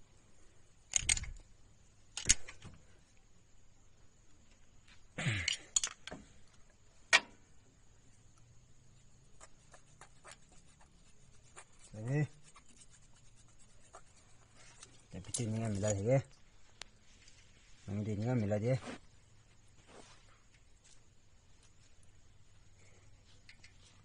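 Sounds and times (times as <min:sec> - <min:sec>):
metallic clicks: 0:00.9 - 0:01.5, 0:02.1 - 0:02.7, 0:05.5 - 0:06.2.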